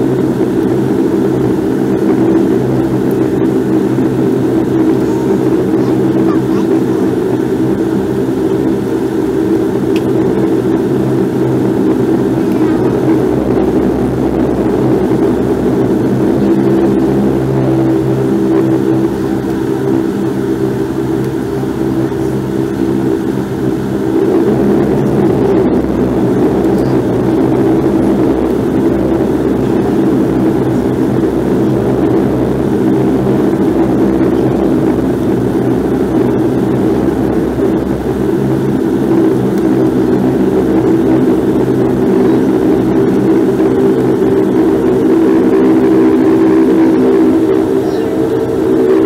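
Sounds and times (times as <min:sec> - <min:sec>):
turboprop engines droning in cabin: 0:00.0 - 0:49.0.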